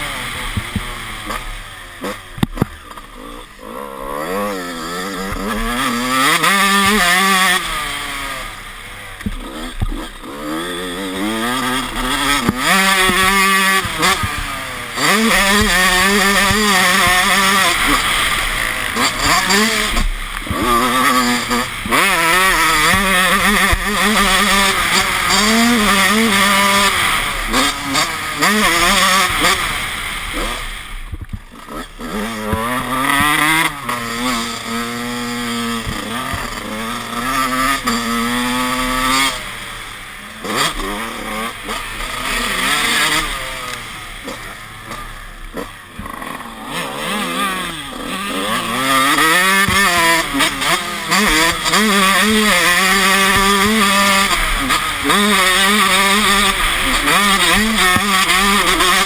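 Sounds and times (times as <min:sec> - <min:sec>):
motocross engine revving: 0:00.0 - 0:59.0.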